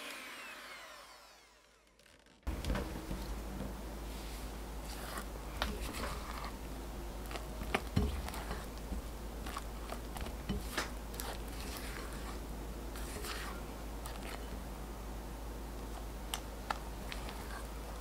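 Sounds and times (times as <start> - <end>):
spatula squelching batter: 4.0 - 14.6, 15.8 - 18.0.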